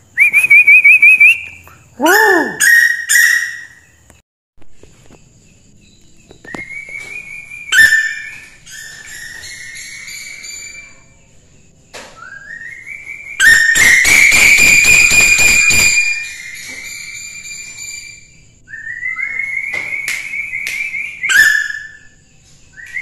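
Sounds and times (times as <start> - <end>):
owl whistled call: 0.1 - 3.9, 12.2 - 22.2
owl pulsing call: 0.2 - 3.9.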